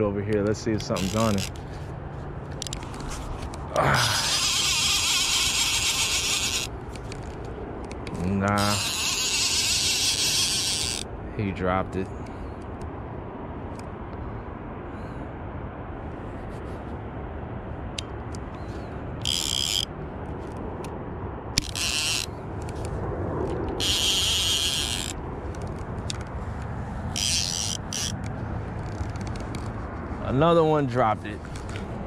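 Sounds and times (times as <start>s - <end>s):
outdoor background rumble: 0.0s - 32.0s
short high hissing bursts: 4.0s - 6.7s.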